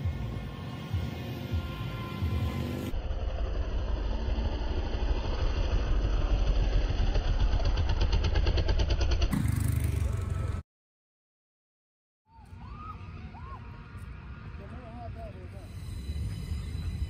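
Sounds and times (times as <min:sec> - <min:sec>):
dirt bike engine running: 0:00.9 - 0:10.6.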